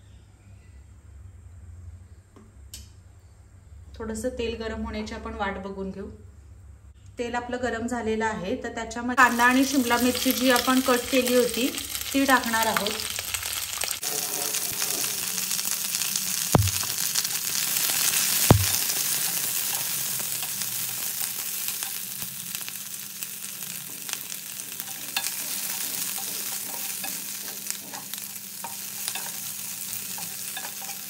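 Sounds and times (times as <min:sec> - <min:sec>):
vegetables sizzling in oil: 0:09.2 - 0:31.0
sharp knocks: 0:16.6 - 0:16.9, 0:18.5 - 0:18.8
spatula stirring clicks: 0:24.8 - 0:31.0.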